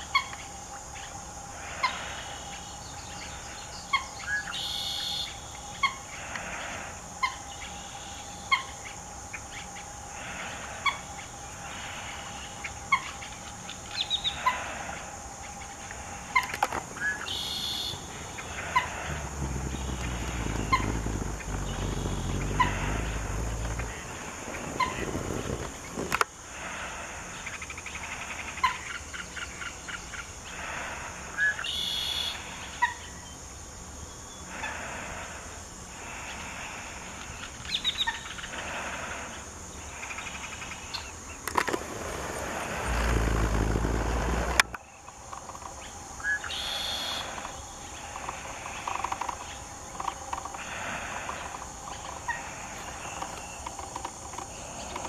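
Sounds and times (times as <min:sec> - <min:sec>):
steady high hiss: 0:00.0 - 0:55.0
wind rumbling on microphone: 0:16.8 - 0:26.3, 0:41.4 - 0:44.9.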